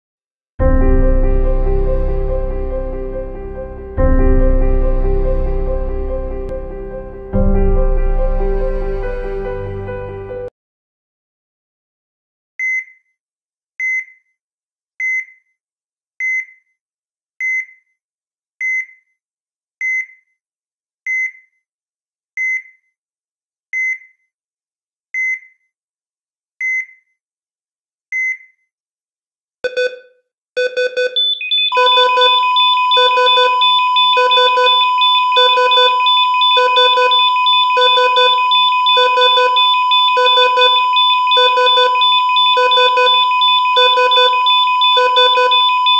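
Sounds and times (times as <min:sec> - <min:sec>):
short high electronic beeps: 0:30.6 - 0:45.9
held synthesized alarm tones: 0:30.9 - 0:45.9.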